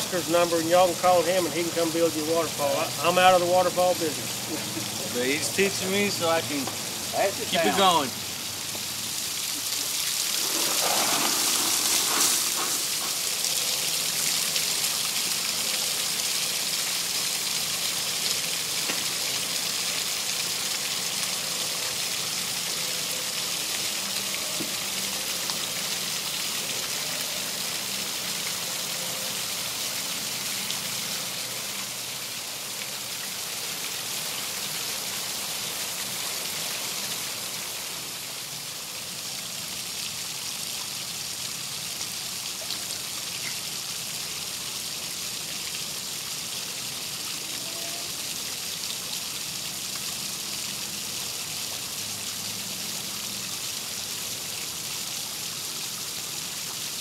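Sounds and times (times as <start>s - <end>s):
waterfall splashing: 0.0s - 40.2s
fountain splashing: 0.0s - 57.0s.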